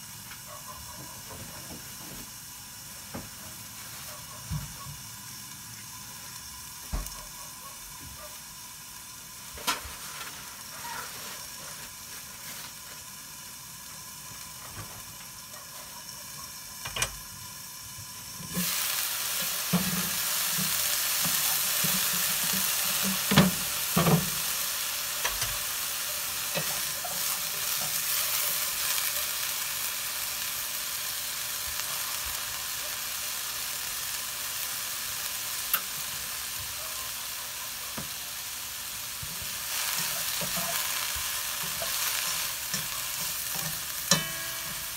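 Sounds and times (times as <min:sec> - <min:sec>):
steaming hiss under lid: 0:00.0 - 0:07.6, 0:09.2 - 0:13.3, 0:13.9 - 0:44.9
food sizzling in pan: 0:00.0 - 0:44.9.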